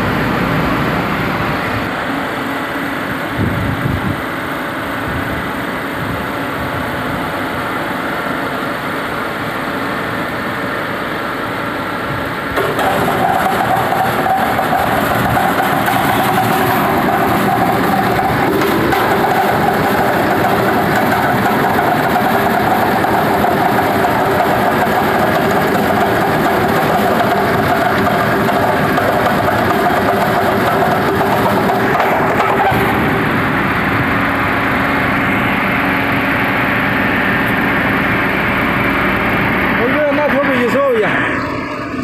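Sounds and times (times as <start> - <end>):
stone processing machine droning: 7.0 - 42.0.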